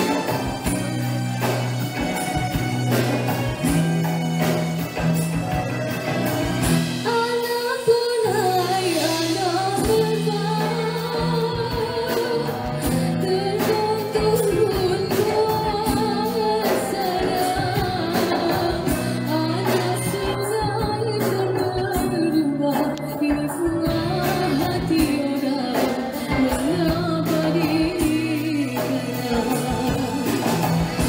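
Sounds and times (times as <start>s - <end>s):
live band playing pop song: 0.0s - 31.0s
steady percussion: 0.0s - 31.0s
woman singing: 6.9s - 31.0s.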